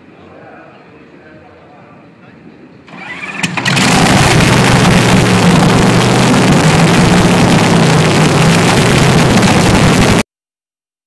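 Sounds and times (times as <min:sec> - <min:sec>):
dragster engine idling: 0:02.9 - 0:10.2.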